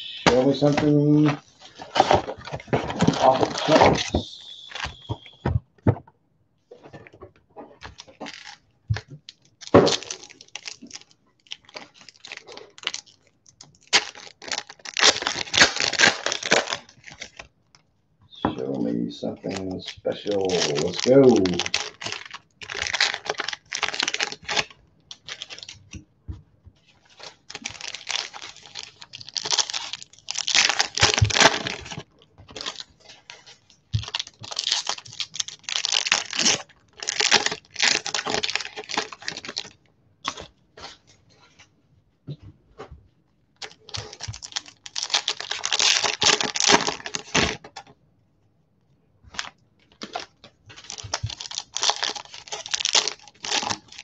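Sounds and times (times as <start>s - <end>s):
foil wrappers tearing and crinkling: 0.2s - 5.4s, 7.8s - 8.6s, 9.3s - 17.4s, 19.3s - 25.9s, 27.0s - 40.5s, 43.6s - 47.7s, 49.4s - 54.0s.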